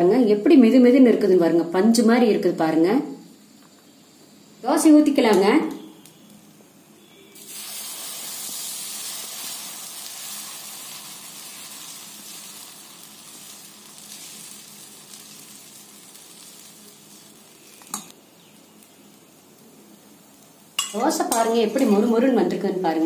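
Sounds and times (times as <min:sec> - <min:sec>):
batter sizzling on a griddle: 0:07.0 - 0:22.4.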